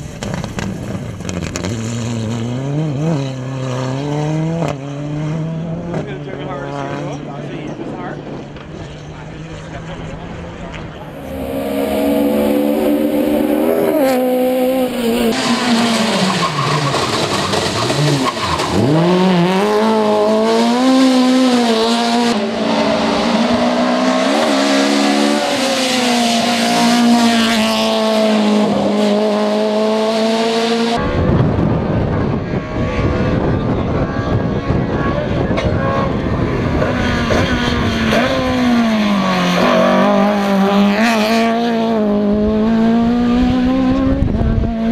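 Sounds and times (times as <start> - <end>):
rally car engines at full throttle: 0.0 - 44.9
rushing noise: 11.0 - 17.5.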